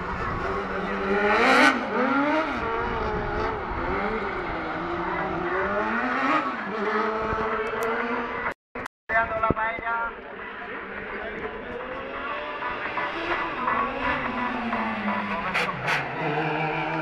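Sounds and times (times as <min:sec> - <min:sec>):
rally car engine revving: 0:00.0 - 0:08.6, 0:10.4 - 0:17.0.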